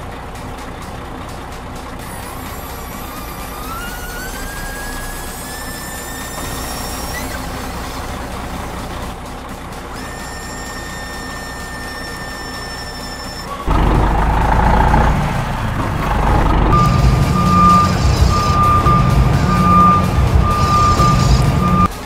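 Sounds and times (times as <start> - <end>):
small electric motor whining: 2.0 - 9.2, 9.9 - 13.8.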